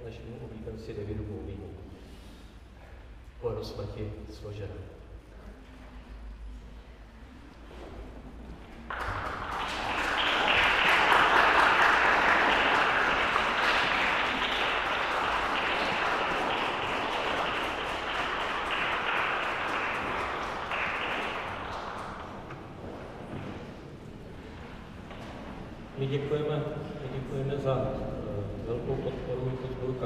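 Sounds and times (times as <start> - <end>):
audience applauding: 8.7 - 23.2.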